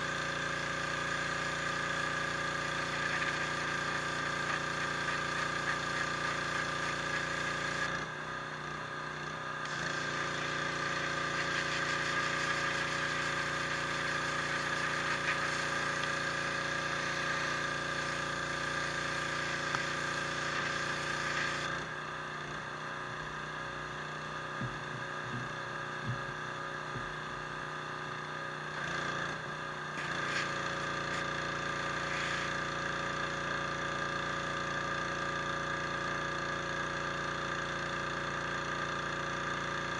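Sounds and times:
hissing water spray: 0.0 - 8.0, 9.6 - 22.0, 28.7 - 33.6
pressure washer motor humming: 0.0 - 39.9.

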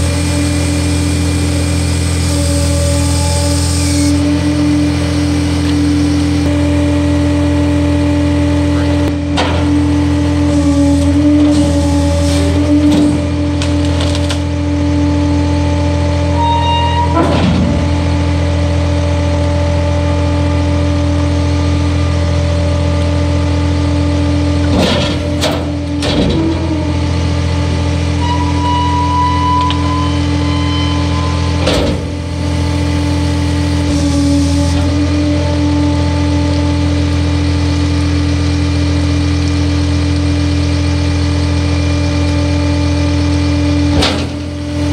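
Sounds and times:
diesel engine droning: 0.0 - 44.9
thin whine: 28.0 - 35.1.

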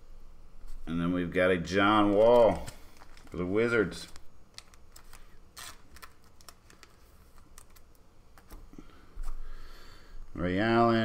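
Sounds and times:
cards and plastic rustling: 1.8 - 9.4.

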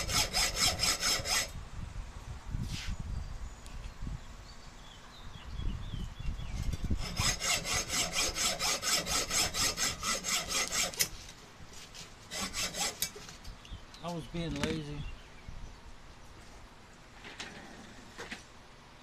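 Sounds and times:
hacksaw sawing metal: 0.0 - 1.5, 6.7 - 11.2, 12.3 - 13.2.

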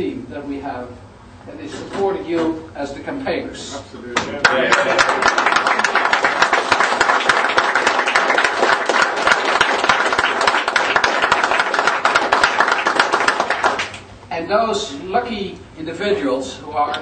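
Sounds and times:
audience applauding: 4.4 - 14.1.

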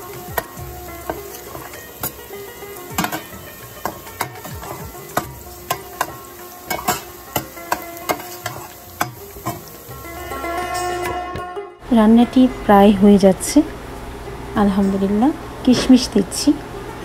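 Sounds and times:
onions sizzling in a pan: 0.0 - 11.1
spatula scraping a pan: 0.0 - 11.2.

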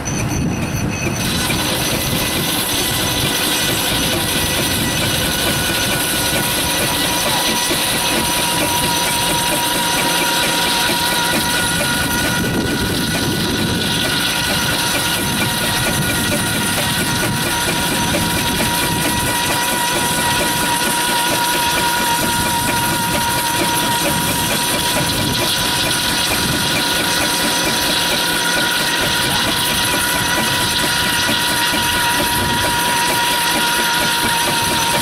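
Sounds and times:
steady high tone: 0.0 - 35.0
steam engine hissing: 0.0 - 35.0.

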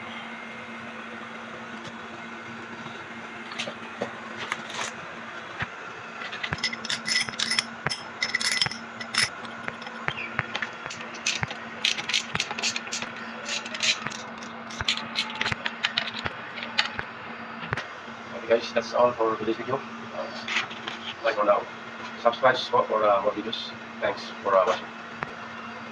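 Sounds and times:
steady low hum: 0.0 - 25.9
metal tools clinking and scraping: 6.2 - 10.1.

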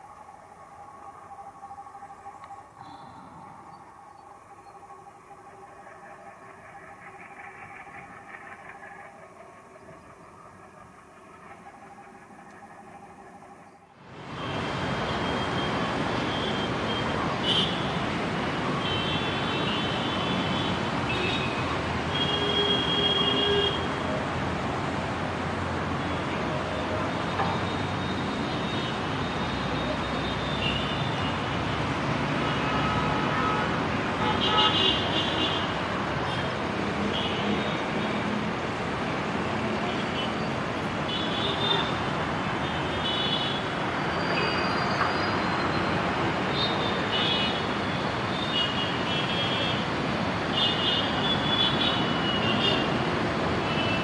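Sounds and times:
faint steady whine: 0.0 - 20.7
distant locomotive engine rumble: 0.0 - 49.1.

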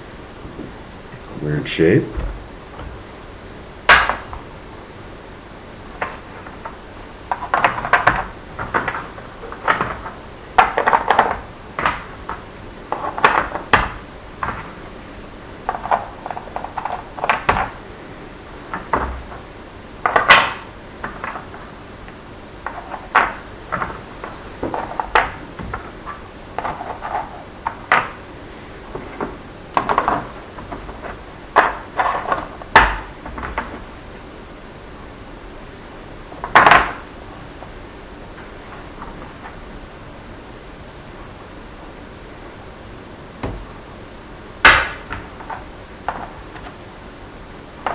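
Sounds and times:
blocks clicking and clattering: 6.0 - 14.8, 15.6 - 17.8, 20.0 - 21.6, 22.6 - 28.2, 29.0 - 33.8, 36.4 - 37.0.

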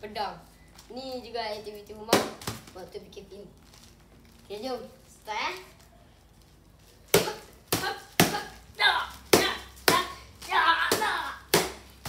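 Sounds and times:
child's voice: 0.0 - 3.5, 4.5 - 5.8, 10.0 - 11.5.

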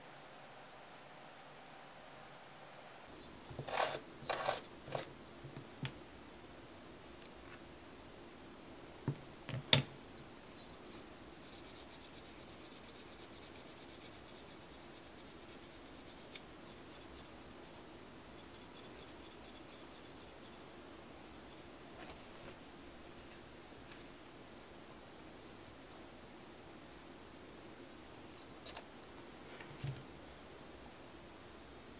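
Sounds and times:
cuticle stick scraping fingernails: 3.6 - 5.1.

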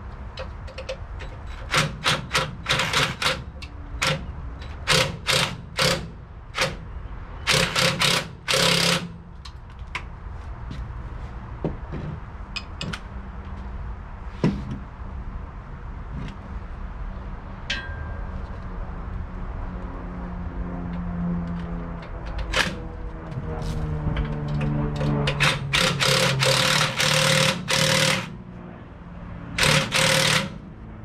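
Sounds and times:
impact wrench bursts: 1.5 - 9.3, 25.3 - 28.4, 29.6 - 30.7.

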